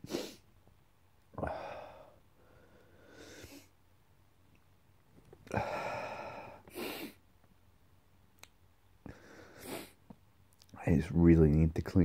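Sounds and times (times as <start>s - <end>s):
quick sniff: 0.0s - 0.4s, 9.6s - 10.0s.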